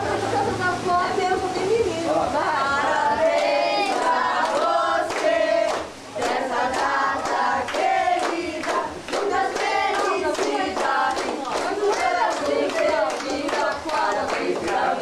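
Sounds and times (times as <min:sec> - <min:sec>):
group singing birthday song: 0:00.0 - 0:15.0
hands clapping in time: 0:03.3 - 0:15.0.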